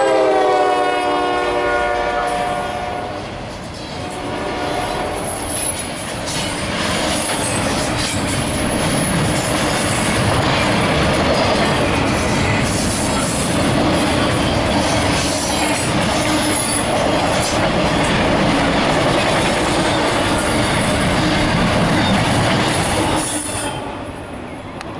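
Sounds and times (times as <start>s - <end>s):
train wheels on rails: 0.0s - 24.9s
high wheel squeal: 5.2s - 6.6s, 21.9s - 24.0s.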